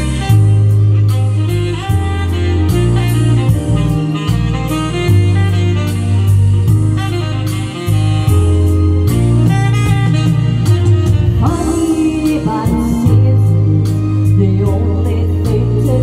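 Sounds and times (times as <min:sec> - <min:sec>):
song with saxophone and vocals: 0:00.0 - 0:16.0.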